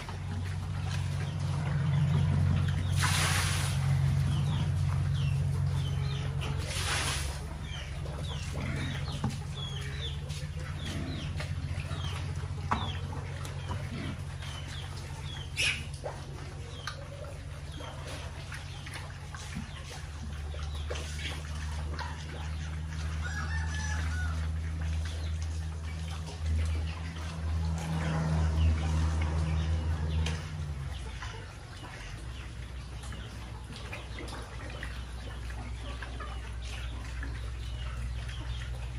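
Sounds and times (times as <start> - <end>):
low hum: 0.0 - 23.2
chickens clucking: 0.0 - 38.9
chicks peeping: 0.0 - 38.9
pigs chewing: 0.0 - 38.9
feed poured from bucket: 2.9 - 3.9, 6.6 - 7.4.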